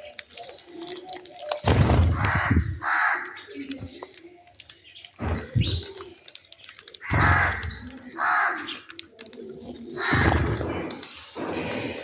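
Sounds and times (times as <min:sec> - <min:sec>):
crow cawing: 0:02.1 - 0:03.4, 0:07.0 - 0:08.8, 0:10.0 - 0:10.5.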